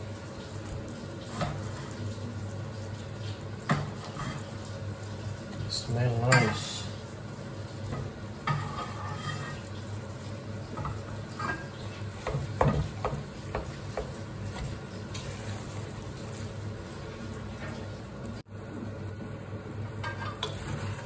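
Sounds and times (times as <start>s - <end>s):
syrup sizzling: 0.0s - 18.4s
spoon knocking and scraping pot: 7.9s - 9.6s, 10.8s - 14.7s, 20.0s - 20.9s.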